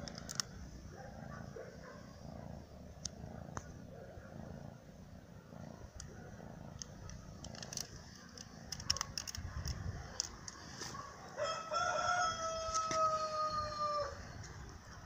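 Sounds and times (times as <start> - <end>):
faint clicks: 0.0 - 0.6, 3.0 - 3.8, 5.8 - 11.0
rooster crowing: 11.4 - 14.3.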